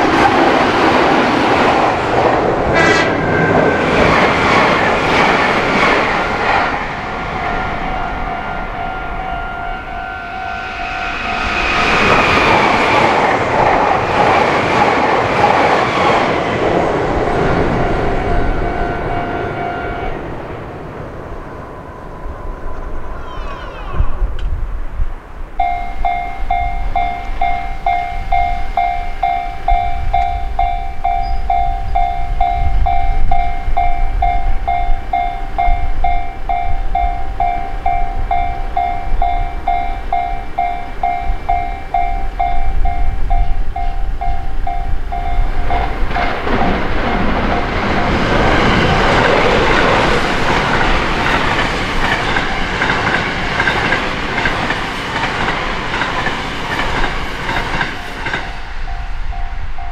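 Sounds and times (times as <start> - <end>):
train wheel and rail noise: 0.0 - 59.9
level-crossing bell ringing: 7.2 - 12.2, 25.6 - 45.6, 57.9 - 59.9.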